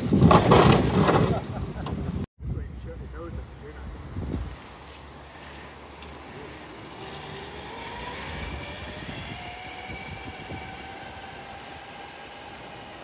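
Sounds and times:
electric motor whining: 6.8s - 13.0s.

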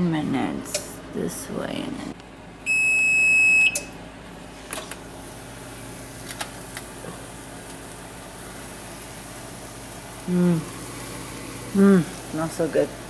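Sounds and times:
steady low hum: 0.0s - 13.0s
high-pitched oven beep: 2.6s - 4.0s.

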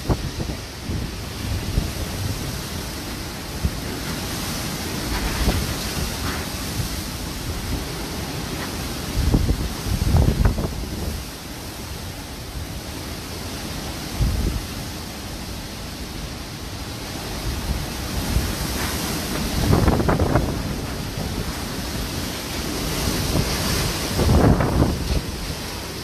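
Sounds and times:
wind buffeting microphone: 0.0s - 11.4s, 17.0s - 26.0s
wind blowing: 0.0s - 26.0s.

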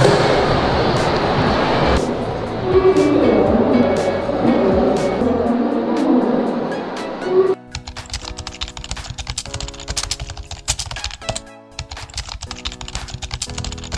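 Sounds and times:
synth chords: 0.0s - 8.1s
background music: 0.0s - 13.9s
rapid sharp clicks: 7.7s - 13.9s.

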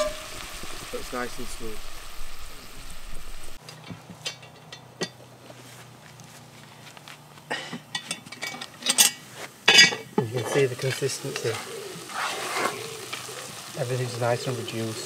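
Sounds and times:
curry sizzling in a pot: 0.0s - 3.6s, 8.0s - 15.0s
metal pot handle and lid clanking: 3.6s - 5.2s, 7.9s - 10.6s.

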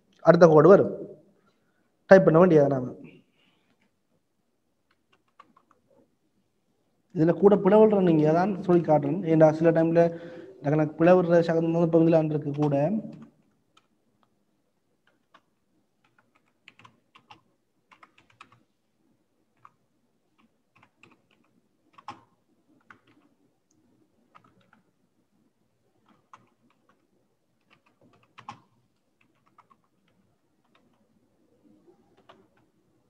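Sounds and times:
faint typing on keyboard: 3.0s - 4.2s, 4.8s - 6.1s, 12.3s - 18.8s, 19.4s - 33.0s.

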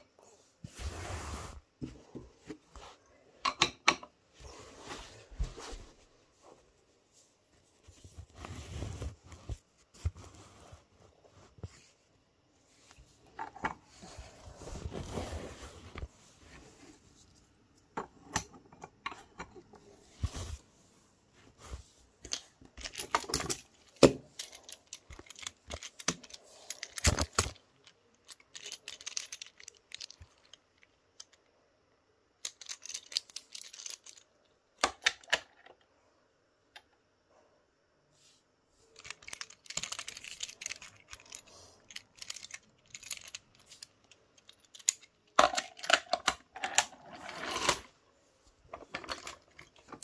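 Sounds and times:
wooden toy pieces clicking: 24.4s - 30.6s, 32.4s - 34.2s, 39.0s - 46.9s.

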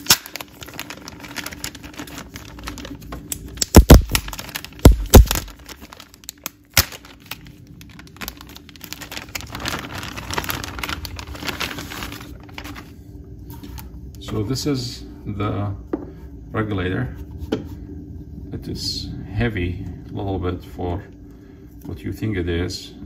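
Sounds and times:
cardboard rustling and crinkling: 0.0s - 12.9s.

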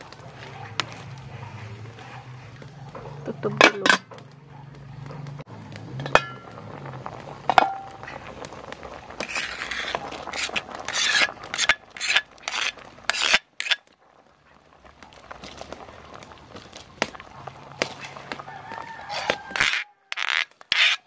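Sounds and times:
metal pot lid and ladle clinking: 3.5s - 4.1s, 6.0s - 6.5s
metal ladle scraping stone mortar: 9.2s - 13.9s, 19.0s - 21.0s.

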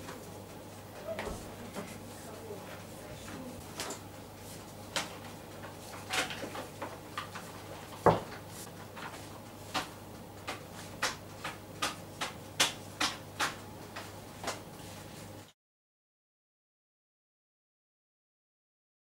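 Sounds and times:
rolling pin and dough slapping: 4.9s - 14.7s.

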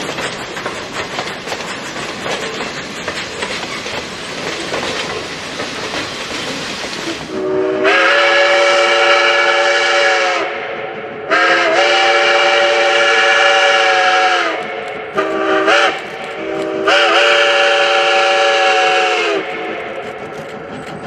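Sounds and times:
train running: 0.0s - 21.0s
steam locomotive chord whistle: 7.2s - 20.2s.

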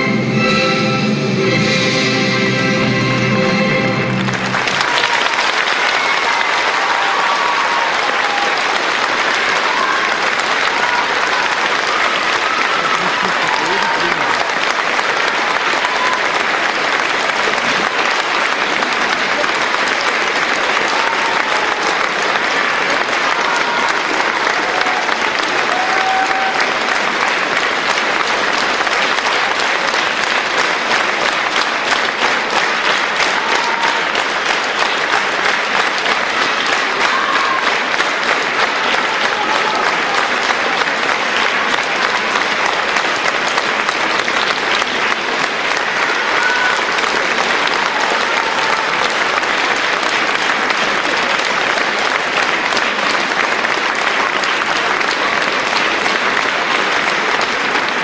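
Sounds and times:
audience applauding: 3.0s - 58.0s.

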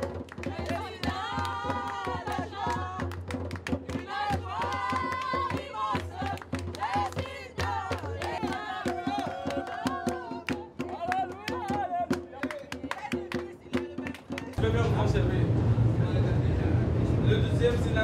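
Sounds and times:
hand clapping: 0.0s - 14.6s
music: 0.0s - 14.6s
group singing: 0.4s - 3.1s, 3.7s - 12.1s.

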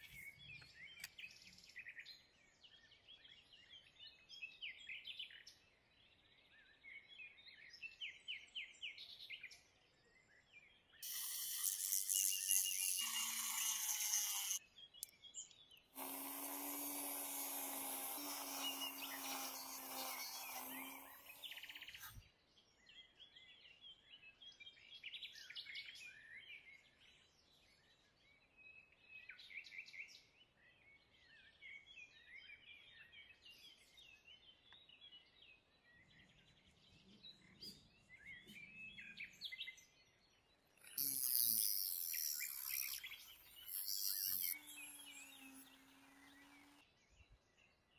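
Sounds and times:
birds chirping faintly: 0.0s - 24.5s, 25.3s - 47.9s
drill cutting disc grinding: 11.0s - 14.6s, 16.0s - 22.1s, 40.9s - 46.8s.

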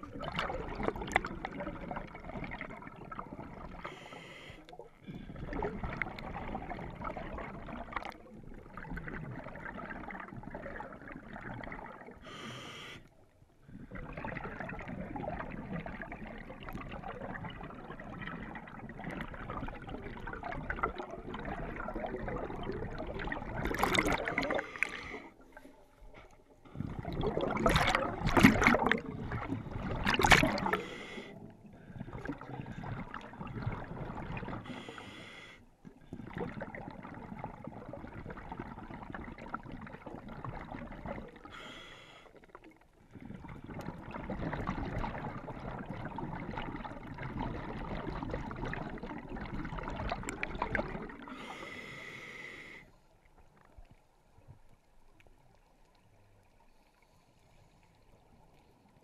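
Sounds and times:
exhaled bubbles rushing: 0.0s - 4.0s, 5.0s - 12.3s, 13.6s - 35.0s, 36.0s - 41.6s, 42.4s - 51.5s
hissing regulator inhalations: 12.2s - 13.1s, 30.6s - 31.4s, 34.6s - 35.6s, 41.5s - 42.4s, 51.3s - 52.9s.

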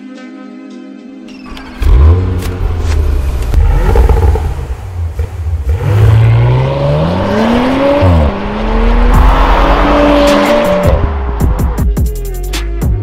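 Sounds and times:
car exhaust accelerating hard: 1.8s - 11.8s.

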